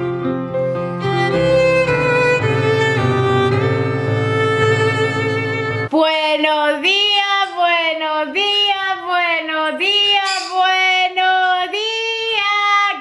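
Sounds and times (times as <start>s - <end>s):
woman singing unaccompanied: 5.9s - 13.0s.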